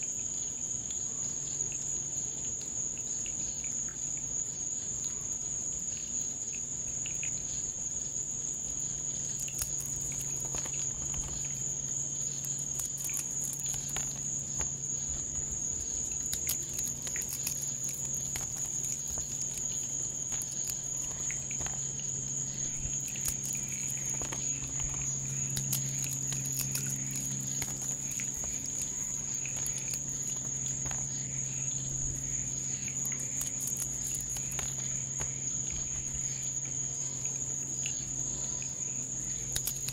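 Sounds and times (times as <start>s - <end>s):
low steady hum: 0.0s - 39.9s
night insects chirping: 0.0s - 39.9s
small crackling clicks: 9.2s - 38.0s, 38.6s - 39.9s.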